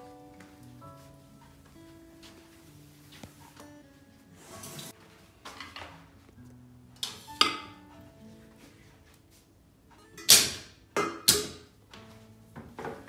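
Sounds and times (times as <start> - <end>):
soft background music: 0.0 - 13.0
kitchenware clattering: 4.6 - 6.2, 7.0 - 8.0, 10.0 - 11.7.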